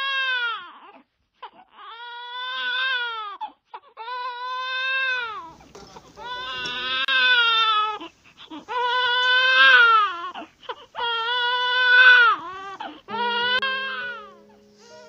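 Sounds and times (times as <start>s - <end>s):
baby crying: 0.0s - 15.0s
held musical tones: 12.5s - 15.0s.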